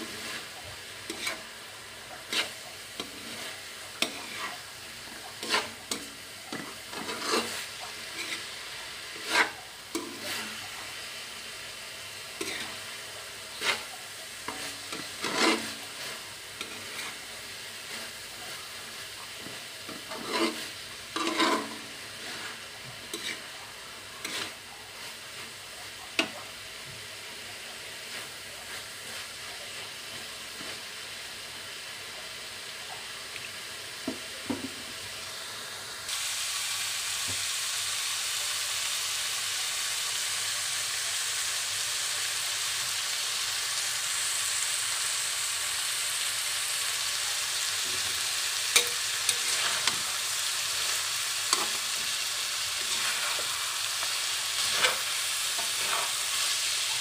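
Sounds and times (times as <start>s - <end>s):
metal spatula scraping pan: 0.0s - 1.5s, 2.2s - 4.6s, 5.2s - 10.8s, 12.4s - 12.9s, 13.5s - 18.2s, 19.4s - 23.5s, 24.2s - 25.5s, 48.0s - 57.0s
food sizzling in a wok: 0.0s - 57.0s.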